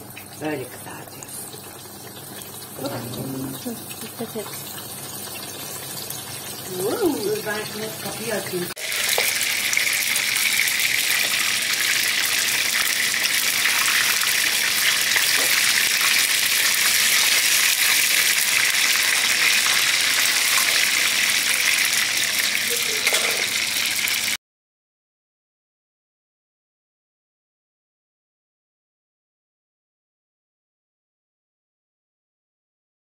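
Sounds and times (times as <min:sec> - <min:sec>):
hot oil sizzling: 0:00.0 - 0:24.4.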